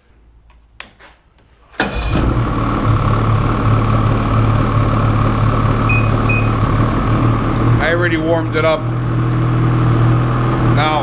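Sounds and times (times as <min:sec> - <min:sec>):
snowmobile engine idling: 0:02.2 - 0:11.0.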